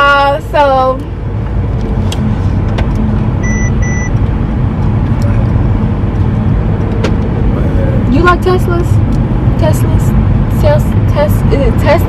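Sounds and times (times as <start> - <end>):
car engine rumble and road noise: 0.0 - 12.0
high electronic beeps: 3.4 - 4.2.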